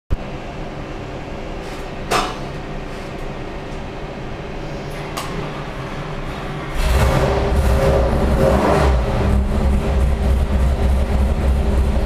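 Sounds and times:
engine idling: 4.9s - 12.0s.

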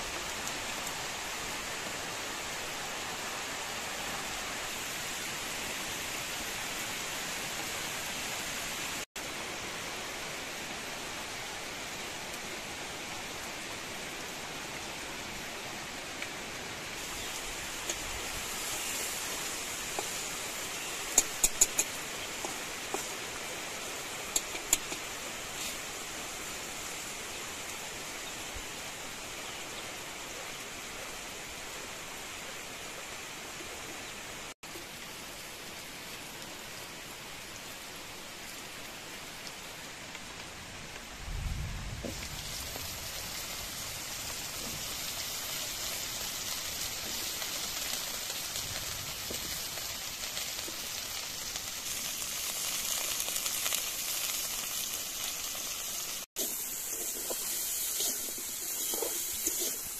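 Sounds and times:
oil sizzling: 13.4s - 28.4s, 42.0s - 59.9s.

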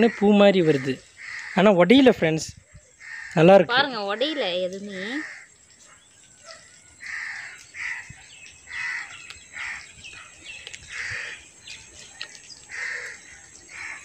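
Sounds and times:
crow cawing: 0.0s - 1.8s, 2.9s - 5.6s, 6.5s - 9.9s, 10.8s - 11.5s, 12.7s - 14.0s.

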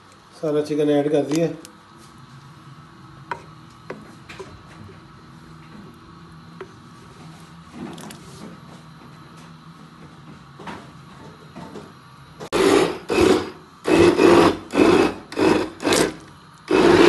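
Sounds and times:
immersion blender pulsing: 12.5s - 17.0s.

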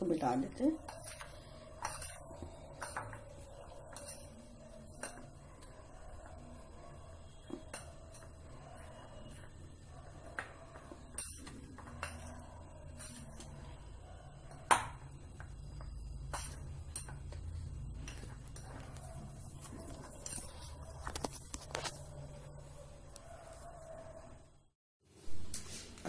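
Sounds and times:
spoon clinking and scraping bowl: 0.8s - 6.5s, 7.4s - 13.8s, 15.4s - 22.0s.

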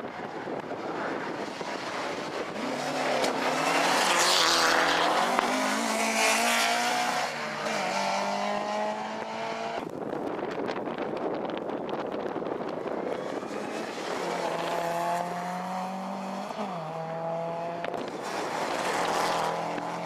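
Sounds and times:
distant rally car engine: 0.6s - 9.8s, 13.0s - 20.0s
rally car engine revving: 0.8s - 9.8s, 13.1s - 20.0s.

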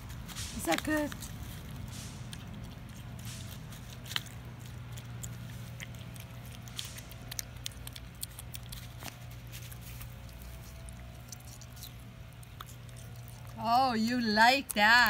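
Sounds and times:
pig chewing and smacking: 0.0s - 15.0s
steady low hum: 0.0s - 15.0s.

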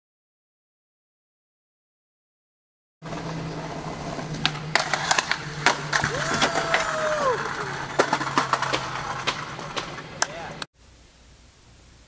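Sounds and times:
skateboard knocks and slam: 4.2s - 10.4s
skateboard clacking on ledge: 4.2s - 10.7s
drawn-out voice: 6.1s - 7.9s.

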